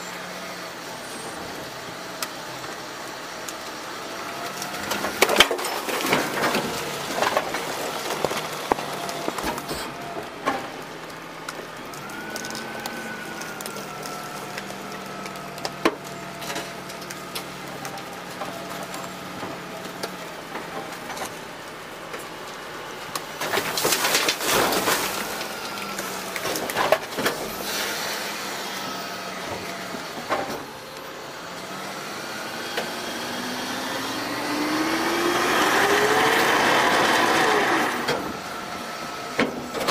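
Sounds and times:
truck engine and hydraulics: 0.0 - 39.9
truck engine revving: 0.0 - 39.9
trash clattering onto metal: 4.7 - 11.0, 15.1 - 28.3.

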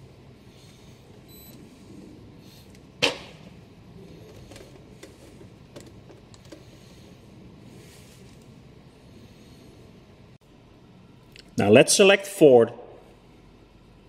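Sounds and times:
low steady hum: 0.0 - 14.0
scan tool beep: 1.3 - 1.6.

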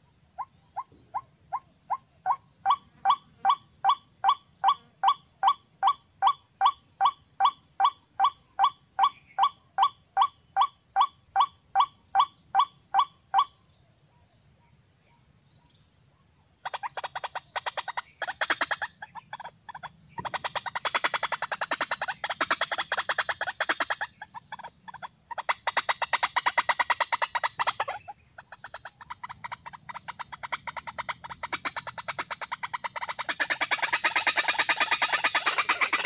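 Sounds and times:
birds chattering harshly: 0.0 - 13.7, 16.6 - 36.0
bird hollow calls: 16.6 - 36.0
wings flapping: 33.7 - 36.0.

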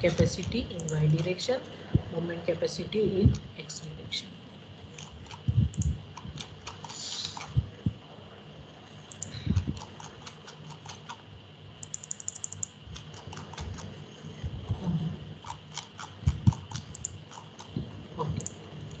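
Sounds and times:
computer keyboard typing: 0.2 - 1.4, 5.0 - 7.6, 9.1 - 11.2, 11.8 - 14.0, 15.4 - 17.8.

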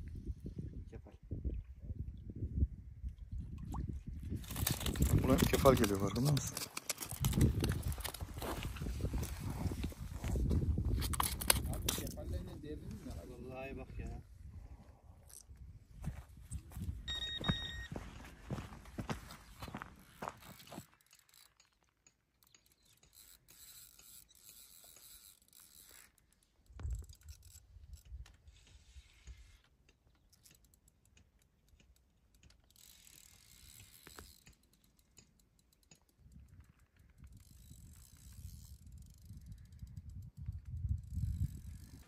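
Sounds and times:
fishing reel clicking: 20.4 - 21.8, 22.4 - 42.0.

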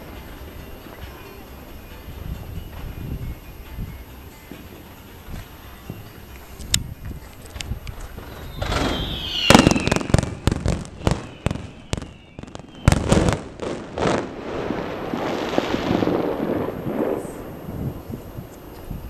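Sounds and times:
fireworks bangs: 0.0 - 19.0
fireworks crackling hiss: 0.0 - 19.0
fireworks falling whistles: 0.0 - 19.0.

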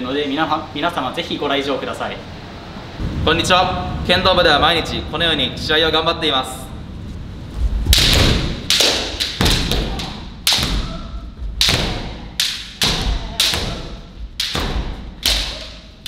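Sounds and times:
bamboo sword strikes: 7.9 - 16.0.

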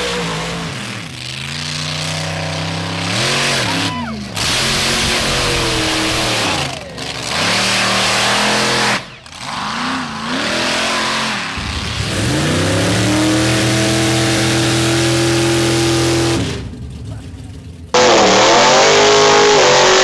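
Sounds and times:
truck engines revving: 0.0 - 20.0.

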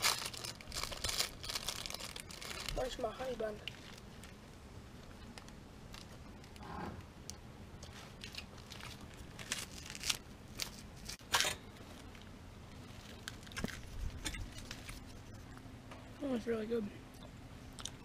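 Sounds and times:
plastic wrapper crinkling: 0.0 - 4.4, 7.9 - 11.2, 12.8 - 15.4.

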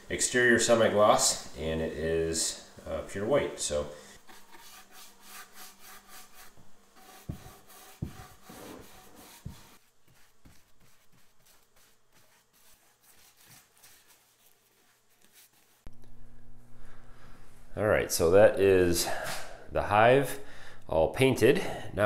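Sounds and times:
paintbrush strokes on wood: 2.4 - 15.9.

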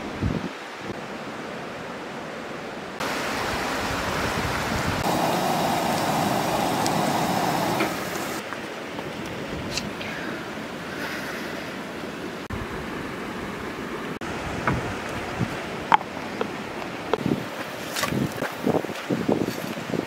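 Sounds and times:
creek flowing over rocks: 3.0 - 9.4.

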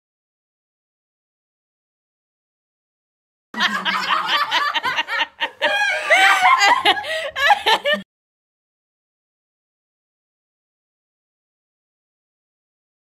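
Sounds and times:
laughter: 3.6 - 8.1.

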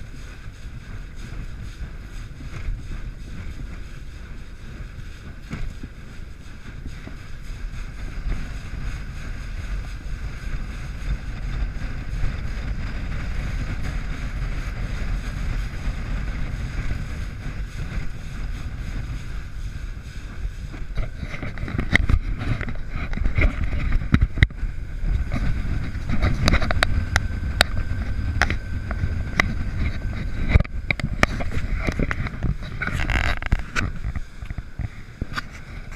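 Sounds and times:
boat hull slapping waves: 0.0 - 35.9
wind rushing over microphone: 0.0 - 35.9.

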